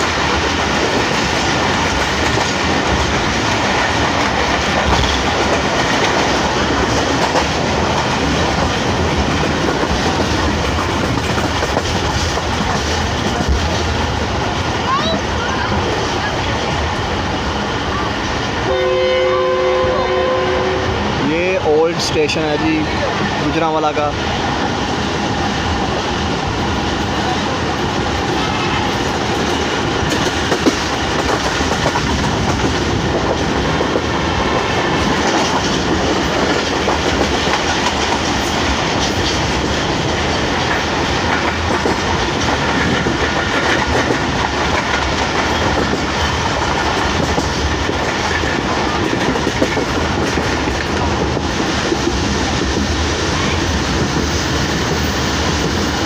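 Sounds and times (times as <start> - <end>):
train running along track: 0.0 - 56.0.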